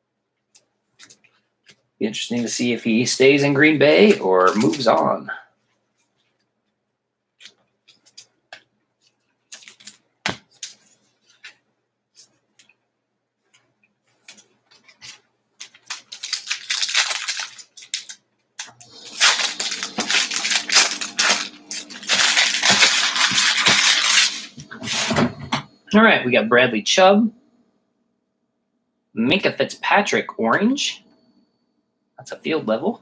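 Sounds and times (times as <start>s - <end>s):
foil wrapper crinkling and tearing: 9.5s - 10.8s, 14.3s - 25.2s.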